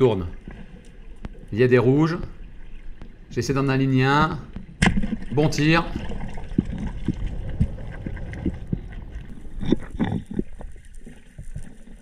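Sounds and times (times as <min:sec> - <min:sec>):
muffled underwater rumble: 0:06.0 - 0:12.0.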